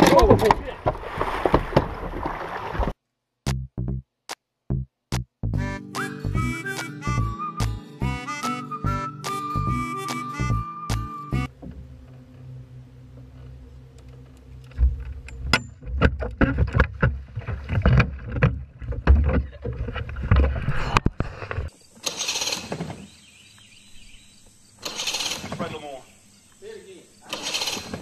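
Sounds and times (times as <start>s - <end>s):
low hum: 11.4s - 21.7s
knocks against small boat: 11.5s - 12.0s.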